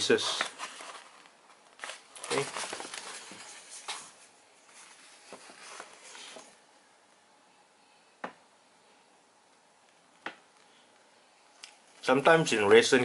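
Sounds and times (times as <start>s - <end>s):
paper rustling: 0.1s - 6.6s.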